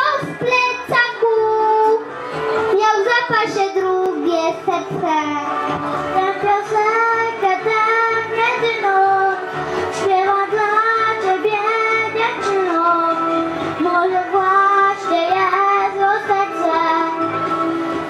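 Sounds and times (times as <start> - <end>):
boy singing into a microphone: 0.0 - 2.1, 2.7 - 17.3
backing music with bass line: 0.0 - 18.0.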